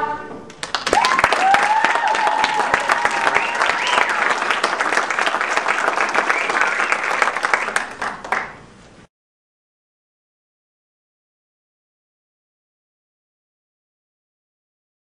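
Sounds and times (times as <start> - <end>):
audience applauding: 0.5 - 8.7.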